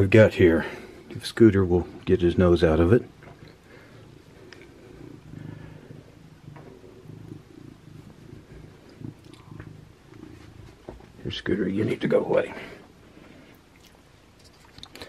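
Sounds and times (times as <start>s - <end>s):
cat purring: 1.7s - 12.8s.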